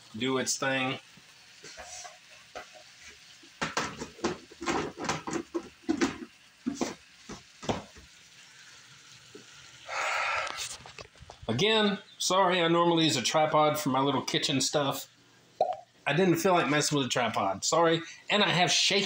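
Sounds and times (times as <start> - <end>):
food sizzling: 0.0 - 19.0
spatula scraping skillet: 1.5 - 7.4.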